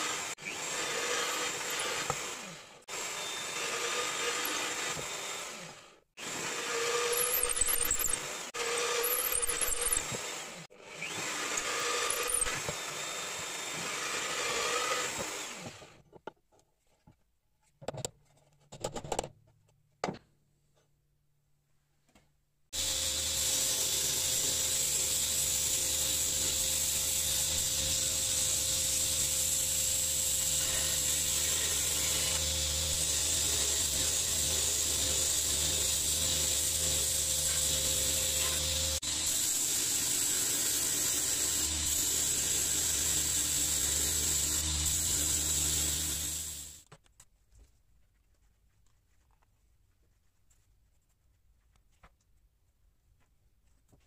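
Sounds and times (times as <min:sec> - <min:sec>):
belt grinder grinding: 0:00.0 - 0:15.9, 0:22.8 - 0:46.9.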